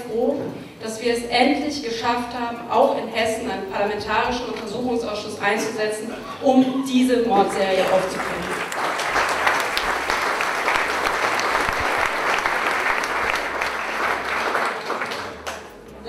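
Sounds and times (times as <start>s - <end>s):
audience clapping: 7.3s - 15.9s.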